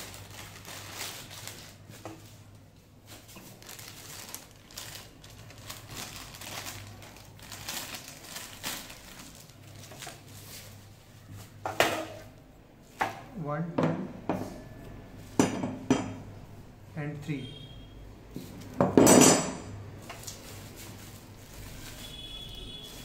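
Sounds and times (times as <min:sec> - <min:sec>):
plastic bags crinkling: 0:00.0 - 0:11.6, 0:20.0 - 0:23.0.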